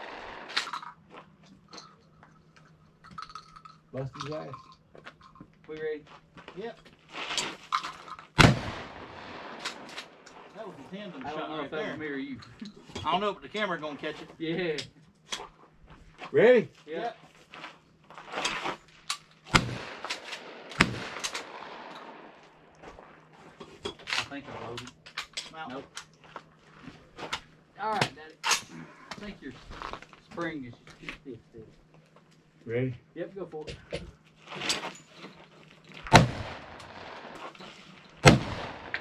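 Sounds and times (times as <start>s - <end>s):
loud shotgun shots: 0.0s - 0.9s, 8.4s - 10.5s, 19.5s - 22.6s, 36.1s - 37.5s, 38.2s - 39.0s
faint sharp gunshot cracks: 8.4s - 10.1s, 19.5s - 22.4s, 36.1s - 37.3s, 38.2s - 39.0s.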